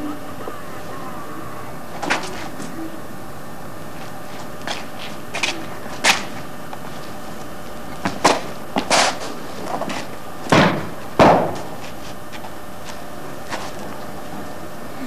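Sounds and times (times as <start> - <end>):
shoes stamping on concrete: 4.0 - 7.2, 7.9 - 14.0.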